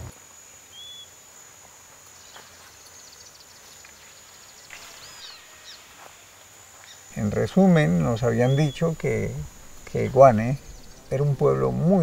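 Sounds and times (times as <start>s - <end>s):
bird calls: 0.7s - 1.1s, 2.2s - 6.0s, 6.8s - 12.0s
high-pitched insect drone: 2.8s - 12.0s.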